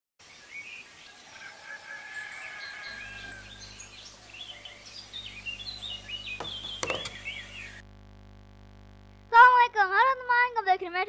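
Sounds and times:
birds chirping: 0.2s - 7.8s
low steady hum: 2.8s - 10.6s.

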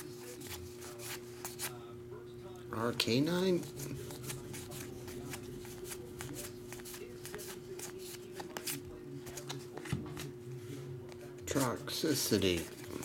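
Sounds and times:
card edges clicking: 3.6s - 10.3s
trading cards flipped by hand: 3.7s - 10.3s.

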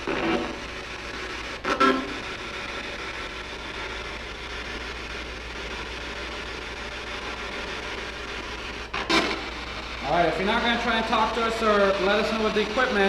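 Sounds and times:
radio static sweeping stations: 0.0s - 13.0s.

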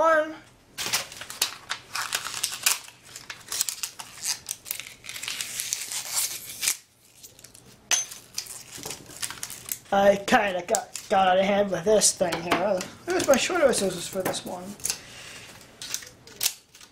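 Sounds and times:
plastic crackles: 0.8s - 11.7s, 12.7s - 16.9s
scissors snipping plastic: 15.8s - 16.9s.

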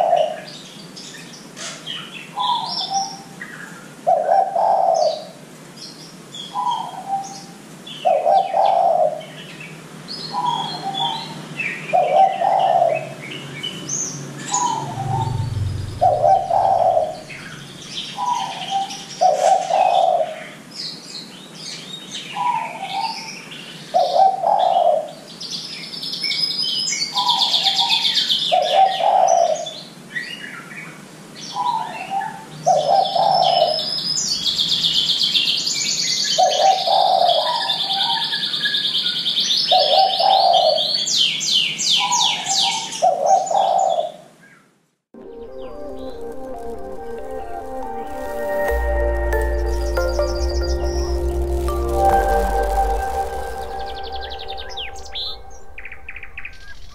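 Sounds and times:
dove cooing: 12.0s - 13.0s, 14.5s - 17.6s
dense high buzzing: 14.5s - 17.8s, 45.2s - 56.9s.

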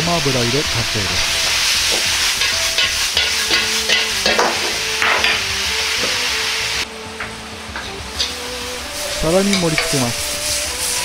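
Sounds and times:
stir-fry sizzling: 0.0s - 11.0s
metal ladle scraping a wok: 0.6s - 6.2s, 7.8s - 11.0s.

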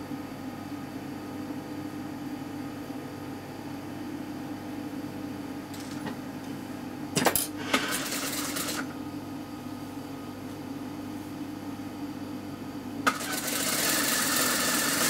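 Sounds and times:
sewing machine hum: 7.6s - 8.9s, 13.0s - 15.0s.

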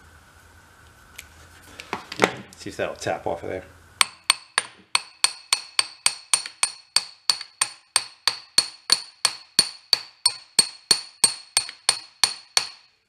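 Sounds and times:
hammer striking metal ringing: 4.0s - 12.9s.

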